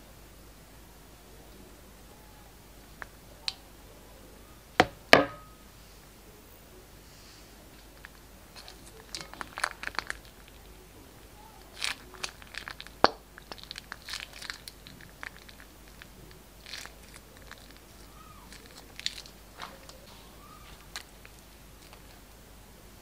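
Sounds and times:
plastic bag crinkling: 0:07.8 - 0:22.4.

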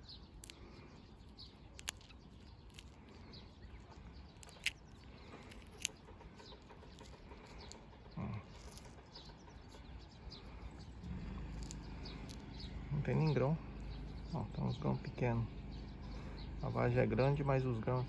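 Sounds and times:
bird chirps: 0:00.0 - 0:18.0
seed pod clicking open: 0:00.2 - 0:09.8, 0:11.5 - 0:12.6.

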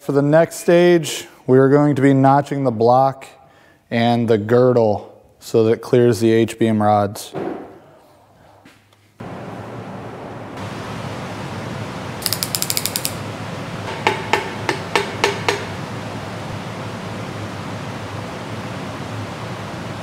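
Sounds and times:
hand ratchet clicking: 0:12.2 - 0:13.2.

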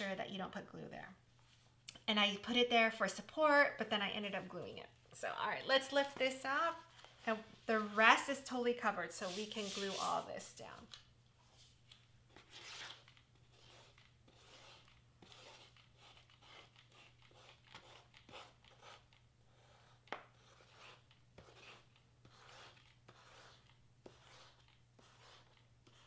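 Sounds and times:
cardstock rustling and scraping: 0:09.2 - 0:10.9.

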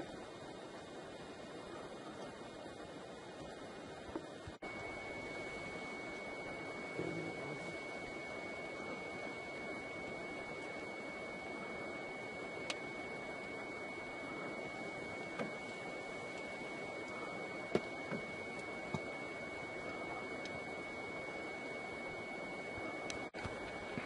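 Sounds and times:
constant hiss: 0:00.0 - 0:24.0
steady high-pitched tone: 0:00.0 - 0:24.0.

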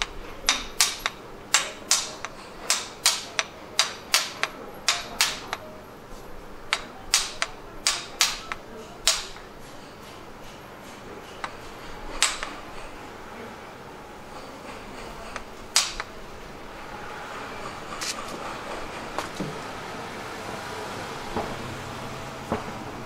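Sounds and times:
mallet knocking knife handle: 0:00.0 - 0:05.6, 0:06.7 - 0:09.4.

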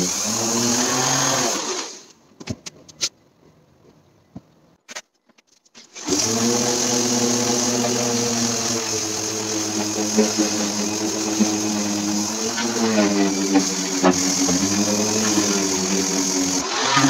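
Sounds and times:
orbital sander on wood: 0:00.0 - 0:02.0, 0:06.0 - 0:17.0.

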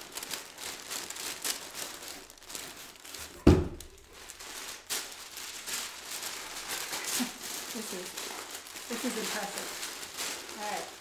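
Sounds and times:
tissue paper and clothes rustling: 0:00.0 - 0:11.0
loud thump: 0:03.4 - 0:03.8.

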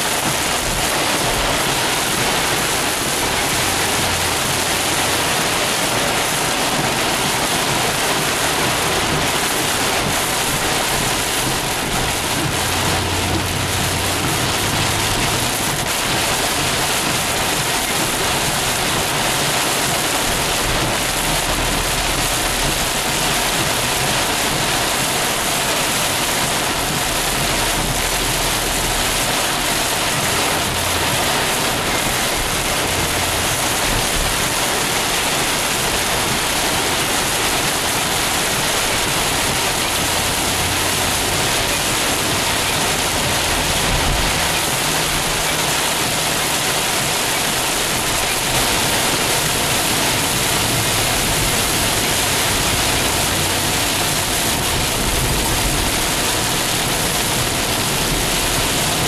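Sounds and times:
heavy rain on car roof: 0:00.0 - 0:59.0.

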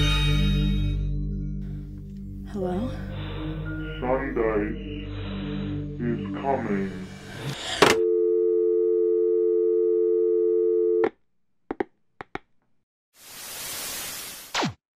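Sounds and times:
telephone dial tone: 0:07.9 - 0:11.1.

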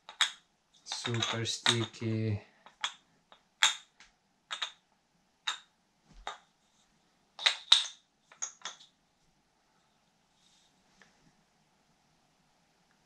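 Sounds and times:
wooden toy clicking: 0:00.0 - 0:02.0, 0:04.5 - 0:04.8.

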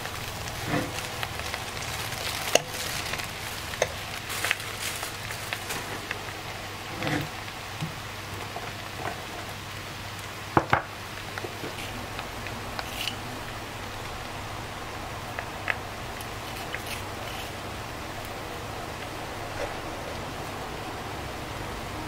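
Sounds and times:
food sizzling in a pan: 0:00.0 - 0:21.9
metal spoon scraping a pan: 0:00.5 - 0:01.1, 0:06.9 - 0:07.4, 0:12.8 - 0:13.2, 0:16.4 - 0:17.6.

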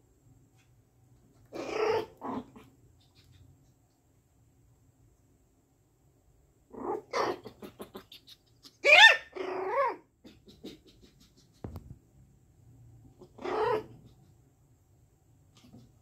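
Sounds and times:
puppies barking in high yaps: 0:08.8 - 0:10.0.

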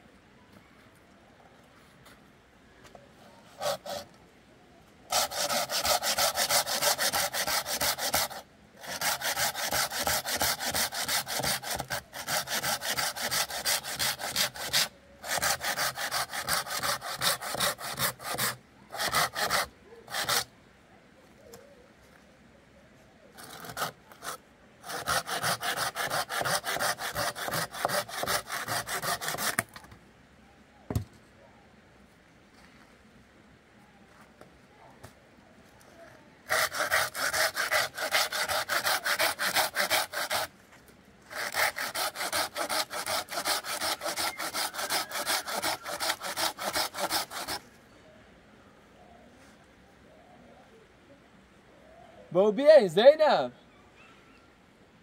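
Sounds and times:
hand saw cutting branch: 0:03.6 - 0:04.1, 0:05.1 - 0:20.5, 0:23.4 - 0:29.7, 0:36.5 - 0:40.5, 0:41.3 - 0:47.6.

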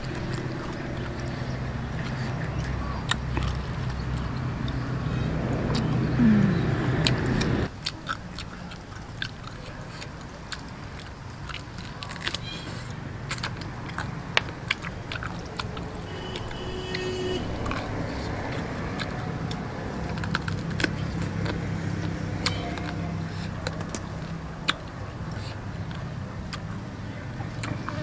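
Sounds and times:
wet mouth clicks and smacks: 0:00.0 - 0:06.0, 0:07.0 - 0:16.6, 0:17.4 - 0:28.0
low drone: 0:00.0 - 0:07.7, 0:12.9 - 0:26.5
close-miked chewing: 0:00.0 - 0:28.0.

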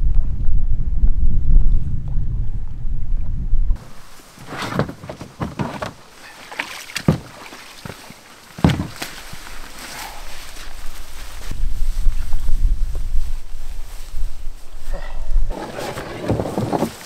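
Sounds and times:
wind rumbling on microphone: 0:00.0 - 0:06.0, 0:08.6 - 0:17.0
rustling: 0:03.8 - 0:17.0
knocks and thumps: 0:04.4 - 0:06.0, 0:07.0 - 0:08.0, 0:08.6 - 0:09.1, 0:15.5 - 0:17.0.

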